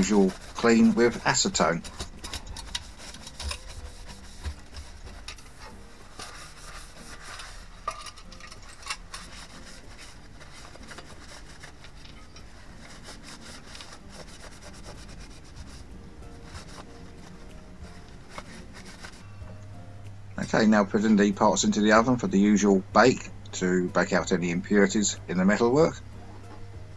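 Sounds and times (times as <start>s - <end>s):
paper towel rubbing on metal: 0.0s - 19.3s
metal pieces tapping and scraping: 1.5s - 3.8s, 7.8s - 9.4s.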